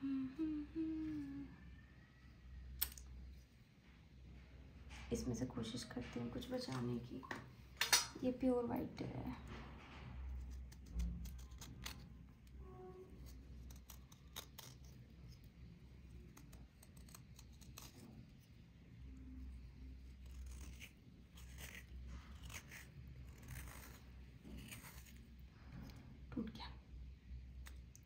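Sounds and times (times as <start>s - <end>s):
steady low hum: 0.0s - 2.3s
knife scraping cloth: 19.2s - 26.0s.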